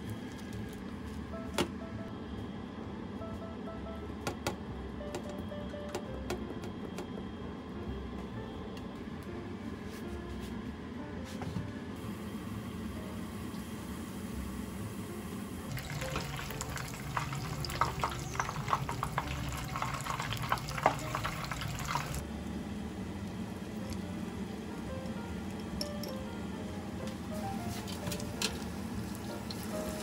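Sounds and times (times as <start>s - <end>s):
meat deep-frying in hot oil: 13.3s - 22.2s, 27.3s - 30.0s.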